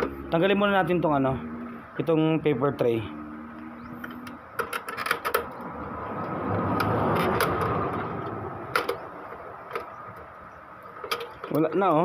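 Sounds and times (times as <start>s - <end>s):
scraping rattle of plastic parts: 4.0s - 5.6s, 6.6s - 12.0s.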